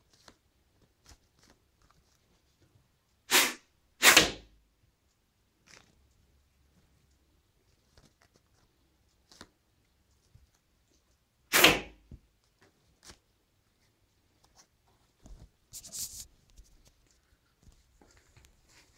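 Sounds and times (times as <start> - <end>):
sharp snap with swish: 3.3 - 4.5, 11.5 - 12.0
rustling scrape of paper: 15.7 - 17.3.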